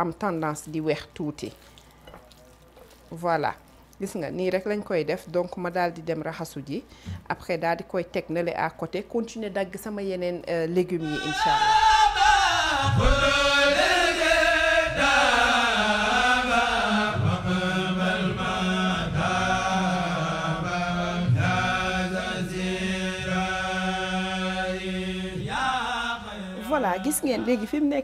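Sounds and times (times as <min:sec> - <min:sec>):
chant-like singing: 0:11.0 - 0:28.0.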